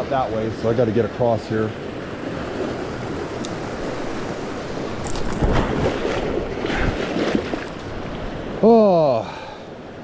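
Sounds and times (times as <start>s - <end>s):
mountain stream rushing: 0.0s - 10.0s
legs splashing through water: 5.0s - 8.1s.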